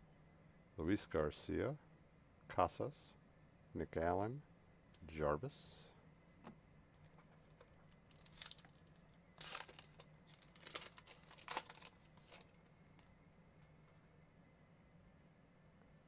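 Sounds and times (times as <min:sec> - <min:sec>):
wrapper tearing and crinkling: 0:07.6 - 0:12.6.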